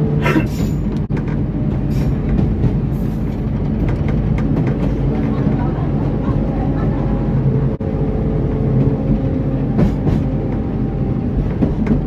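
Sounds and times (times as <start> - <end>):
rail noise: 0.0 - 12.0
train engine hum: 0.0 - 12.0.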